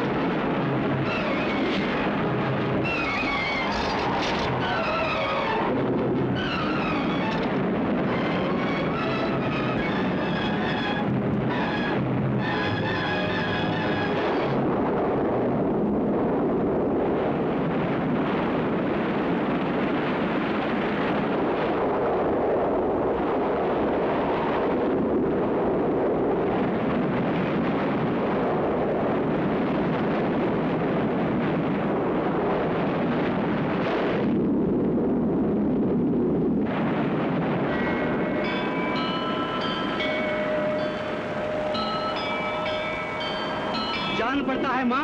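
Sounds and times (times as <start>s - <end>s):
wind: 0.0s - 45.0s
heavy rain: 36.7s - 45.0s.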